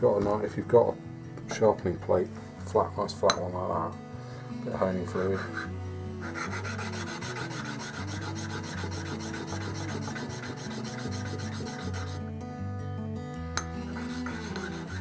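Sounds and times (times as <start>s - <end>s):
metal rasping on sharpening plate: 5.2s - 12.2s, 13.6s - 15.0s.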